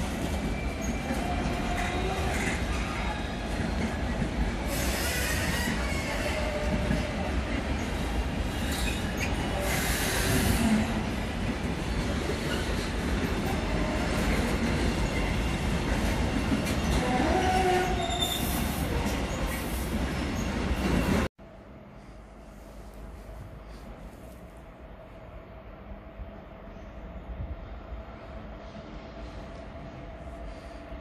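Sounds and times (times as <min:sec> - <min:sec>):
train wheel squeal: 0:00.0 - 0:10.8, 0:16.6 - 0:21.3
train wagons rumbling and rattling: 0:00.0 - 0:21.3.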